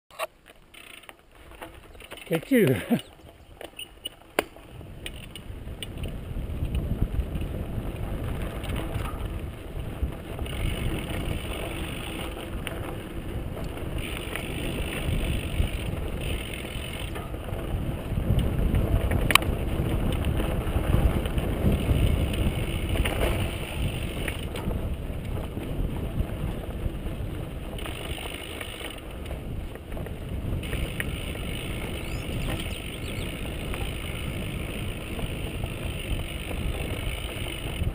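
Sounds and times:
bike rattling: 0.1 - 37.9
tyres rumbling on dirt: 1.2 - 37.9
freewheel ratchet clicking: 10.4 - 12.4, 14.0 - 17.3, 30.6 - 37.9.

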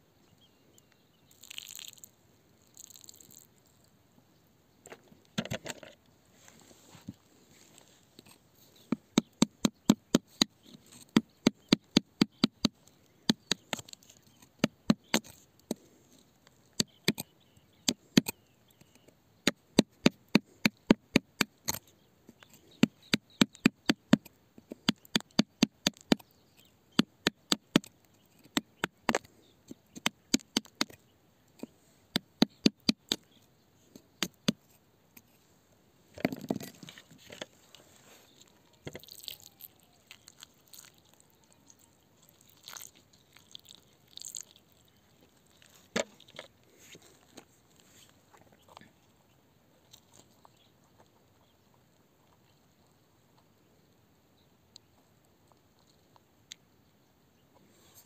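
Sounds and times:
loosened rock scraping: 36.1 - 48.8.

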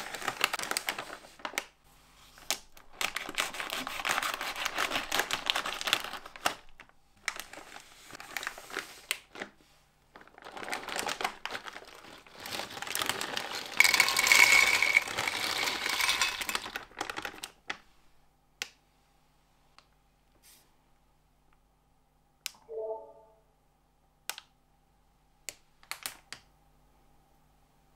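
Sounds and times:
plastic bag crinkling: 0.0 - 1.7, 2.3 - 17.8
snacks pouring into a bowl: 10.3 - 17.6.

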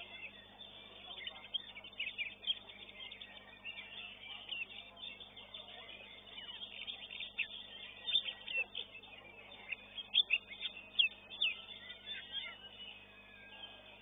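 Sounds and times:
bird chirping and whistling: 6.1 - 13.9.

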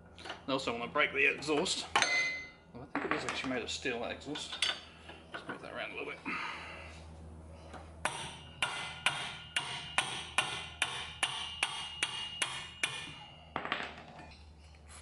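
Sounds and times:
hammer tapping on metal spanner: 8.0 - 13.2.

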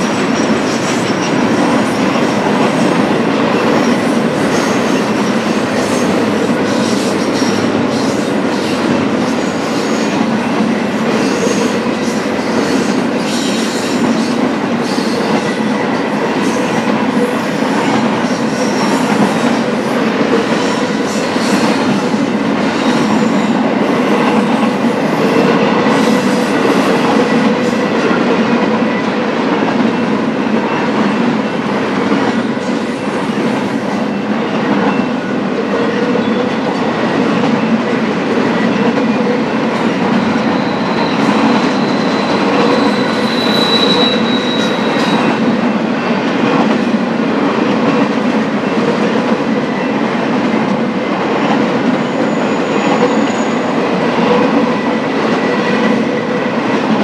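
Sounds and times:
freight train rumbling past: 0.0 - 57.0
high wheel squeal: 40.2 - 45.4.

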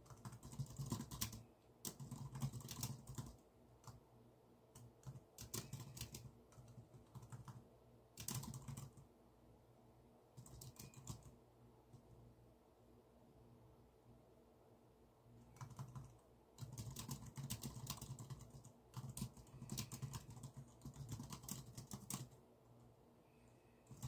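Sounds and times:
computer keyboard typing: 0.0 - 4.0, 4.7 - 9.1, 10.4 - 12.0, 15.5 - 22.4.

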